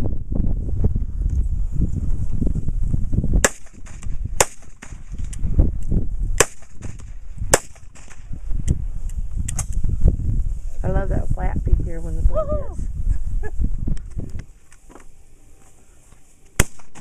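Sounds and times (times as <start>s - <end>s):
pistol shots: 3.4s - 5.0s, 6.4s - 8.2s, 16.6s - 17.0s.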